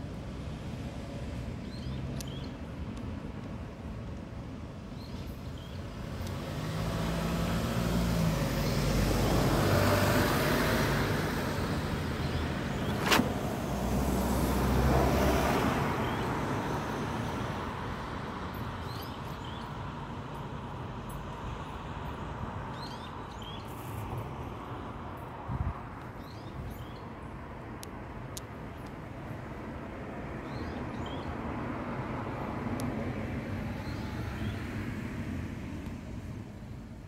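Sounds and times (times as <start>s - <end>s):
vehicles passing by: 0.0s - 37.0s
sharp click: 12.8s - 13.4s.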